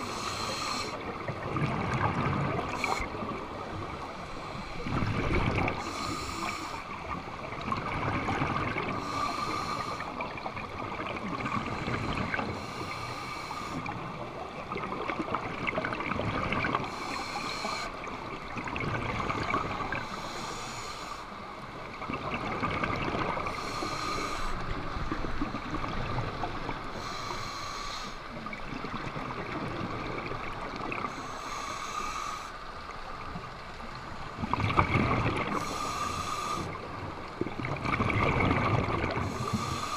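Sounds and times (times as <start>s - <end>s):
regulator breath hiss: 0.0s - 1.0s, 5.8s - 6.9s, 9.0s - 10.1s, 11.8s - 13.9s, 16.9s - 18.0s, 20.0s - 21.3s, 23.5s - 24.6s, 27.0s - 28.3s, 31.1s - 32.6s, 35.6s - 36.8s, 39.3s - 39.9s
bubbling exhaust underwater: 0.0s - 21.1s, 21.7s - 32.5s, 33.2s - 39.9s.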